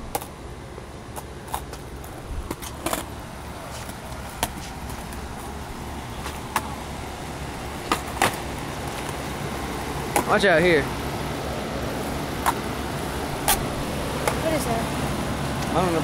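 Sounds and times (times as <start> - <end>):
skateboard wheels rolling on concrete: 0.0 - 16.0
sharp skateboard clacks: 1.1 - 5.5, 6.2 - 6.8, 7.8 - 9.2, 10.0 - 10.4, 12.4 - 12.7, 13.4 - 14.4.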